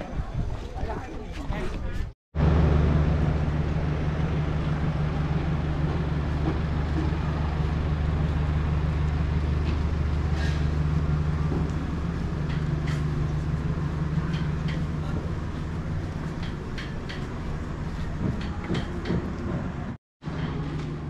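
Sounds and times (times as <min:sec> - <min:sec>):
engine idling hum: 0:02.4 - 0:21.0.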